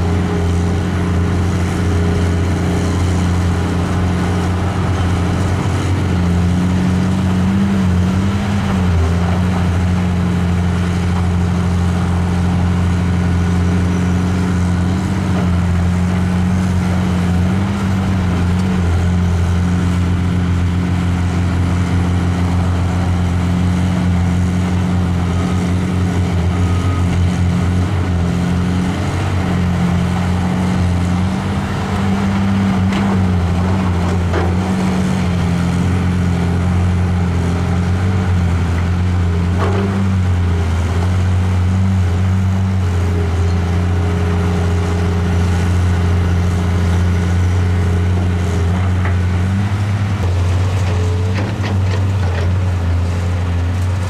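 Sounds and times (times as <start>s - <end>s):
excavator diesel engine running: 0.0s - 54.0s.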